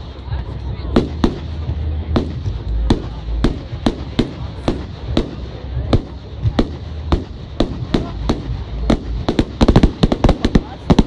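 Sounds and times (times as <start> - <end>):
fireworks bangs: 0.0 - 11.0.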